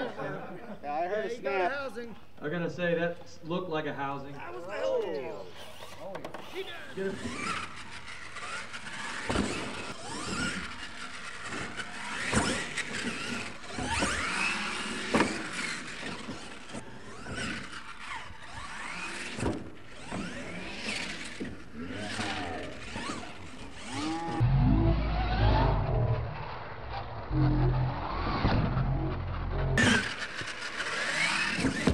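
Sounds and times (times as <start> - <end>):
tyres squealing on dirt: 4.0 - 31.9
rc truck motor whining: 4.5 - 31.9
low rumble: 24.4 - 29.8.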